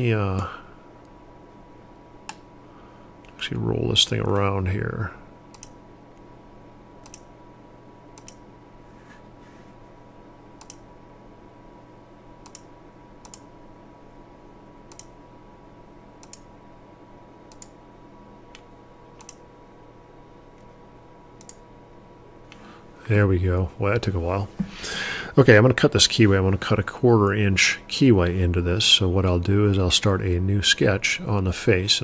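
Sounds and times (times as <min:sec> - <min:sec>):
steady electrical hum: 0:00.0 - 0:32.0
computer mouse clicks: 0:05.5 - 0:05.8, 0:07.0 - 0:07.3, 0:08.2 - 0:08.4, 0:10.6 - 0:10.8, 0:12.4 - 0:13.5, 0:14.9 - 0:15.2, 0:16.2 - 0:16.5, 0:17.5 - 0:17.8, 0:18.5 - 0:19.4, 0:21.4 - 0:21.6.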